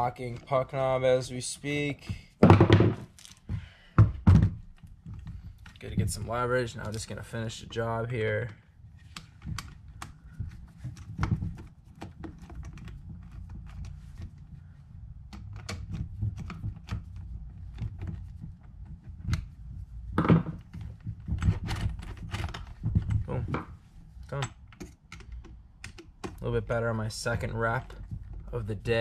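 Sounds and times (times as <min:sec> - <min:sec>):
loud knock: 0:02.4 - 0:03.1.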